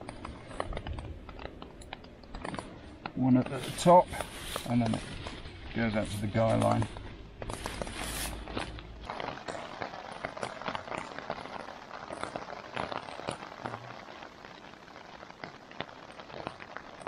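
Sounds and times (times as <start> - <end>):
rain pattering on tent: 0.0 - 17.0
fabric rustling: 2.5 - 9.1.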